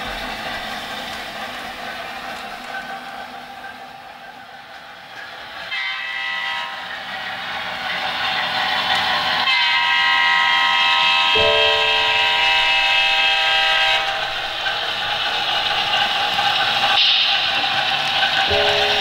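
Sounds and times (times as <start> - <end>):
model locomotive air horn: 5.7 - 7.3, 9.3 - 15.5.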